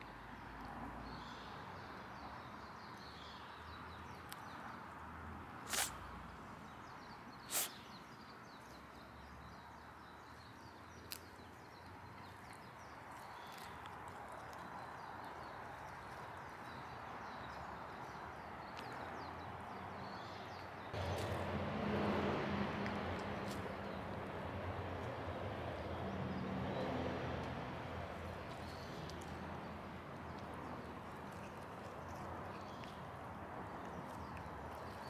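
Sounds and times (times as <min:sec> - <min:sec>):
outdoor hiss: 0:05.6 - 0:06.1, 0:07.4 - 0:07.9
cat crunching grass: 0:05.7 - 0:06.0, 0:12.2 - 0:16.4, 0:28.1 - 0:35.0.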